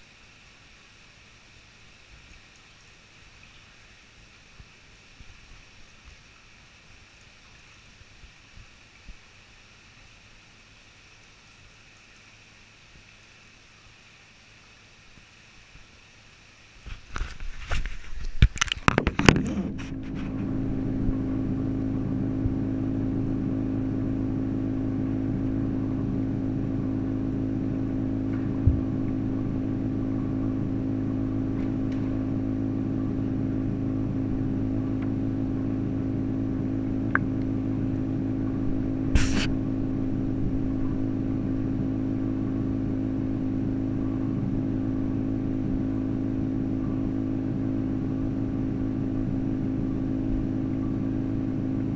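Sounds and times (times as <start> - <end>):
low machine hum underwater: 0.0 - 51.9
water splashing and knocking: 16.9 - 20.4.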